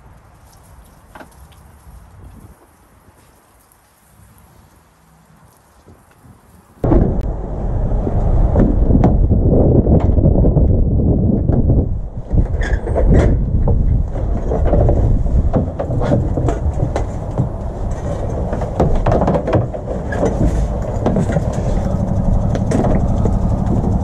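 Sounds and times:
low rumble: 6.8s - 24.0s.

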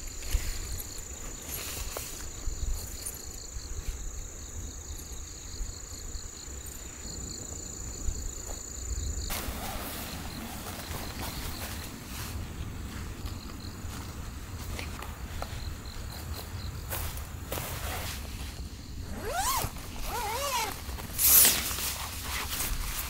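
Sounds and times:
tent fabric rustling: 0.0s - 4.1s, 9.3s - 23.0s
high-pitched insect trill: 0.0s - 12.1s, 18.7s - 22.5s
low wind rumble: 7.2s - 21.1s.

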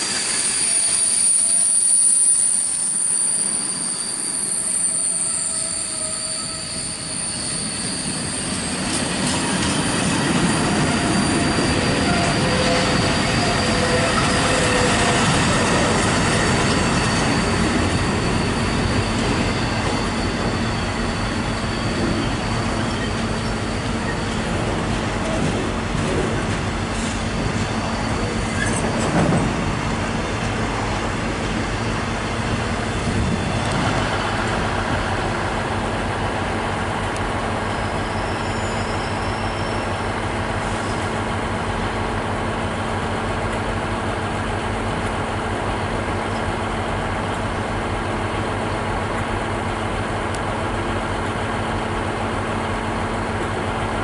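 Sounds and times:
train wheels rumbling on rail: 0.0s - 54.0s
thin high whine: 9.7s - 24.6s.

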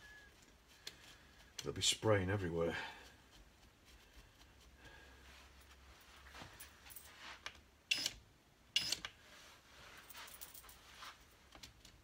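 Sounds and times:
handling noises: 9.4s - 12.0s.

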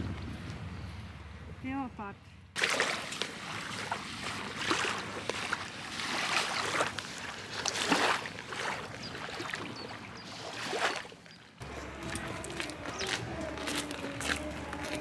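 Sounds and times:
waves washing onto beach: 2.6s - 11.0s.

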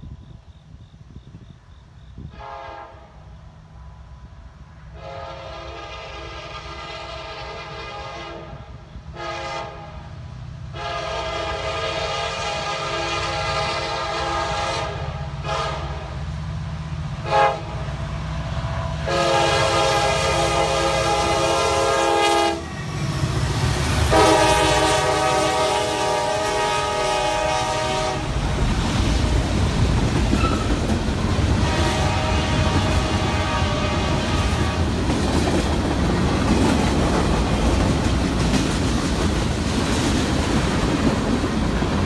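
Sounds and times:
low rumble of locomotive engines: 0.0s - 42.0s
locomotive air horn blasts: 2.3s - 3.3s, 4.9s - 10.1s, 10.7s - 16.2s, 17.2s - 18.0s, 19.0s - 23.3s, 24.0s - 28.4s, 31.6s - 34.9s.

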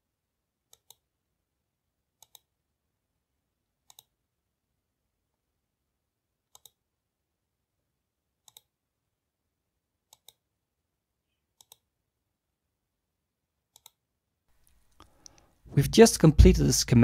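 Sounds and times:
computer mouse clicking: 0.7s - 1.0s, 2.2s - 2.5s, 3.8s - 4.2s, 6.5s - 6.8s, 8.4s - 8.7s, 10.1s - 10.4s, 11.6s - 11.9s, 13.7s - 14.0s.

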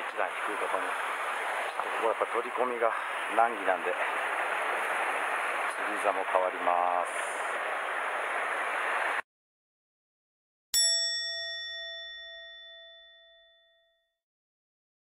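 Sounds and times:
surf washing against rocks: 0.2s - 9.2s
bell-like chime: 10.8s - 14.2s.

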